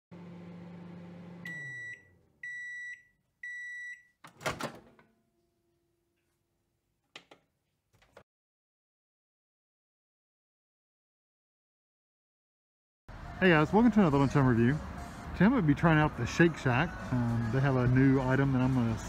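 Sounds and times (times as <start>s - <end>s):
microwave oven humming: 0.1s - 2.7s
microwave beeps: 1.3s - 4.2s.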